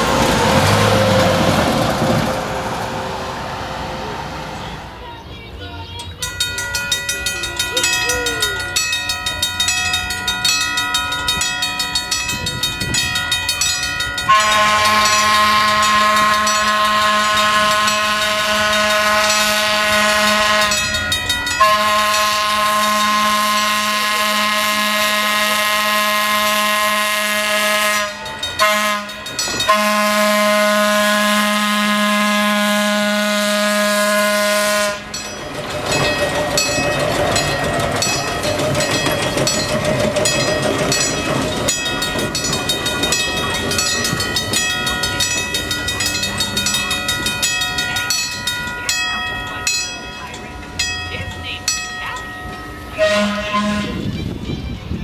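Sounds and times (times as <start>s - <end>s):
wheels rolling on rails: 0.0s - 24.3s, 34.5s - 55.0s
train air horn blasts: 14.3s - 21.0s, 21.6s - 35.2s, 53.0s - 54.2s.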